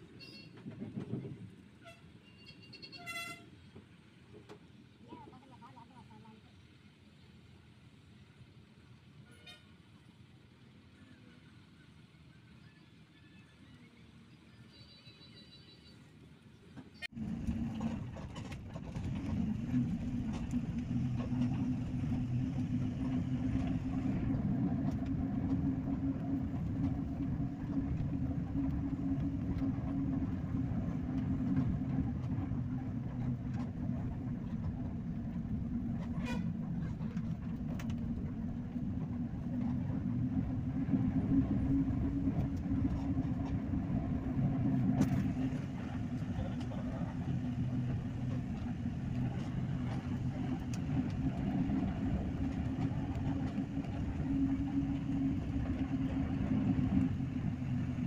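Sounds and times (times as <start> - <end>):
bus engine and road noise: 0.0 - 58.0.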